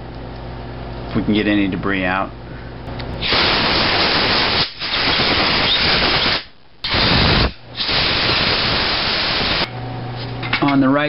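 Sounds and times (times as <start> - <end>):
compressed air blow gun hissing: 3.2 - 9.7.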